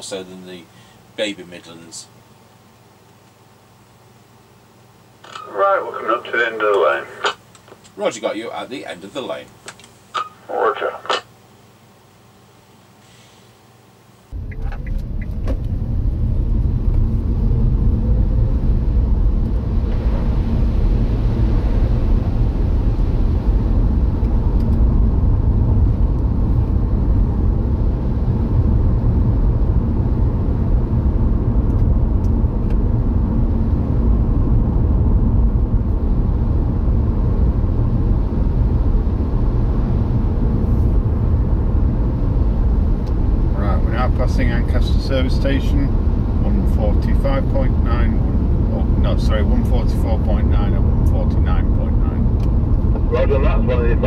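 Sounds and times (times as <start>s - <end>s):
car engine and road rumble: 14.3s - 54.0s.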